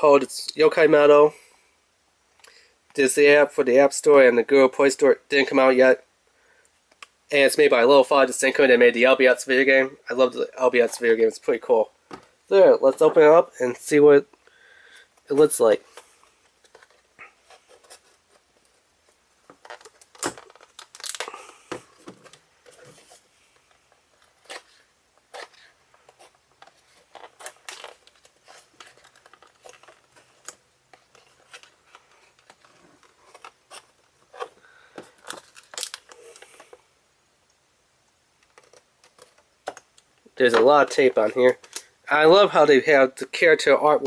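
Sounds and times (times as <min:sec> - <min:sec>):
packaging crinkle: 0:19.6 - 0:23.2, 0:24.2 - 0:36.8.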